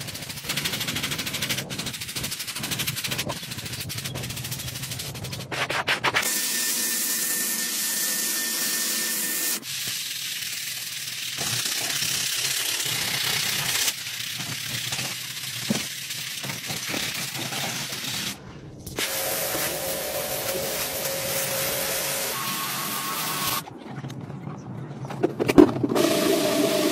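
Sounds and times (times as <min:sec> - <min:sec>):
water spray hissing: 0:19.0 - 0:23.6.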